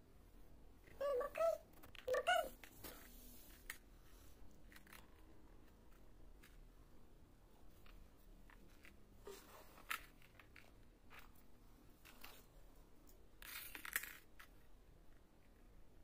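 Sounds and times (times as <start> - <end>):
puzzle pieces clicking and rustling: 4.6 - 6.7, 9.7 - 11.4, 13.4 - 14.7.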